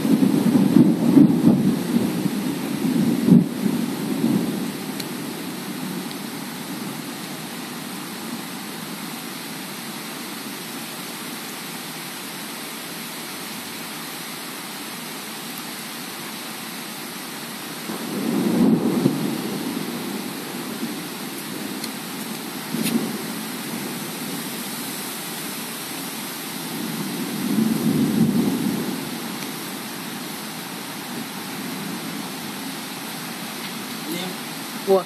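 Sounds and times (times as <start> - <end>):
thunder rumbling: 0.0 - 6.1, 17.9 - 24.4, 26.7 - 29.4
heavy rain falling: 0.0 - 35.0.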